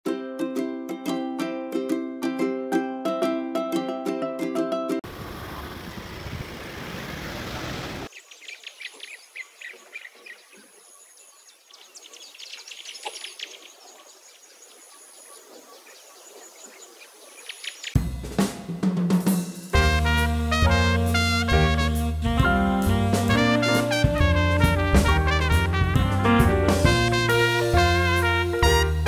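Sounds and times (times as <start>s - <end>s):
birds chirping: 5.4s - 18.0s
drum-kit music: 18.0s - 29.0s.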